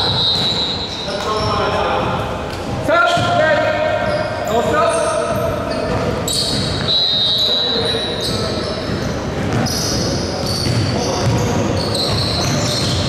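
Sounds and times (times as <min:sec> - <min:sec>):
basketball bouncing on court: 0:00.0 - 0:00.8, 0:02.5 - 0:04.4, 0:05.2 - 0:07.3, 0:08.0 - 0:13.0
sneakers squeaking: 0:00.0 - 0:13.0.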